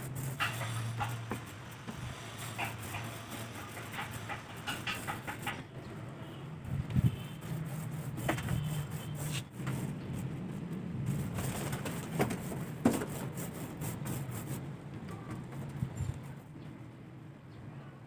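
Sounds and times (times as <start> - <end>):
tool scraping wood: 0.0 - 5.7, 7.0 - 10.0.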